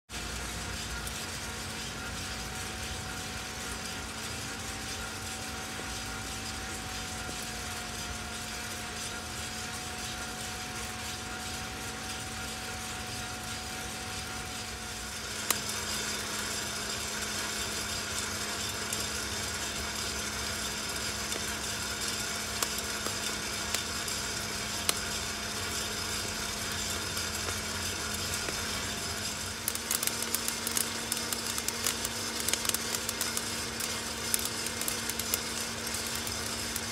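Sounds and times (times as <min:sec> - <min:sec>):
coffee beans tumbling: 0:00.1 - 0:36.9
coffee roaster humming: 0:00.1 - 0:36.9
coffee beans popping: 0:14.6 - 0:36.9.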